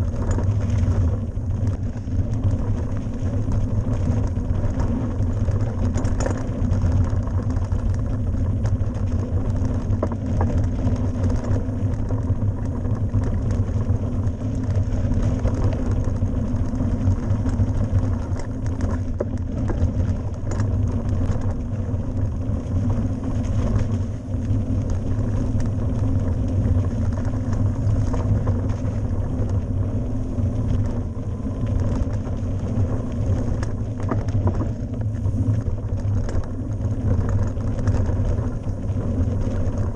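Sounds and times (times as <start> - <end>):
bike clicks and rattles: 0.0 - 39.9
tyres and wind rumble: 0.0 - 39.9.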